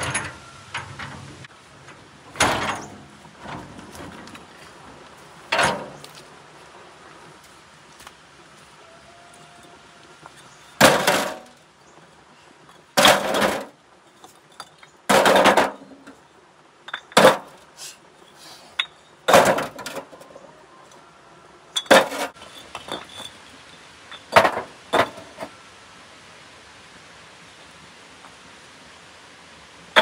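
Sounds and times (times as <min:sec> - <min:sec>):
bricks and trowel knocking: 0:10.8 - 0:11.5, 0:13.0 - 0:13.7, 0:14.6 - 0:16.0, 0:17.0 - 0:17.6, 0:18.8 - 0:20.1, 0:21.8 - 0:23.3, 0:24.3 - 0:25.4.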